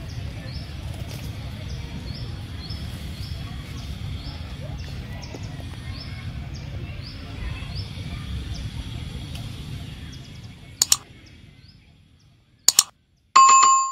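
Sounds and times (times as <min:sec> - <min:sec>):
sharp double clicks: 0:10.8 - 0:11.0, 0:12.7 - 0:12.9.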